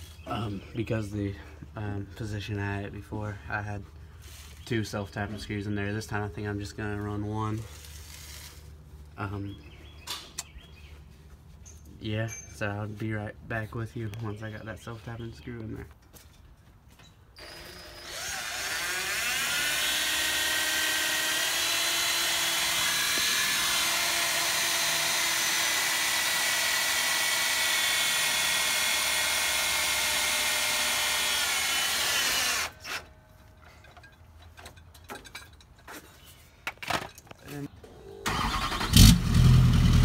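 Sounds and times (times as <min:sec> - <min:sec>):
cordless drill motor whine: 0:17.4 - 0:33.0.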